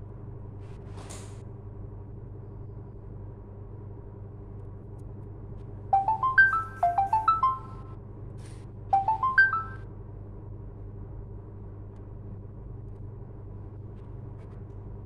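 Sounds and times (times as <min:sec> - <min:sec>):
electronic beeping melody: 0:06.0 - 0:07.9, 0:09.0 - 0:09.8.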